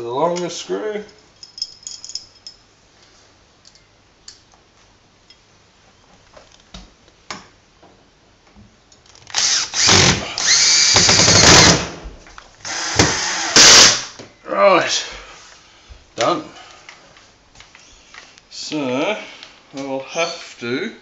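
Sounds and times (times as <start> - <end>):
cordless drill driving screw: 9.3 - 11.8, 12.7 - 14.1.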